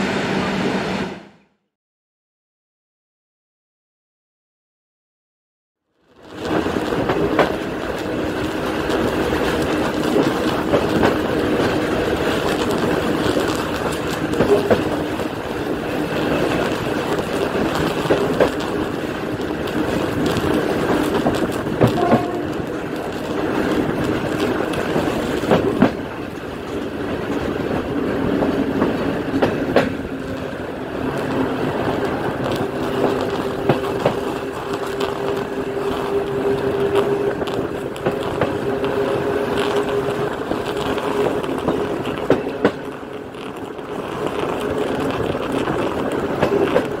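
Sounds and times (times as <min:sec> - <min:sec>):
pantograph arcing crackle: 0:05.9 - 0:47.0
electric train running: 0:06.2 - 0:47.0
wheels clicking over rail gaps: 0:06.3 - 0:47.0.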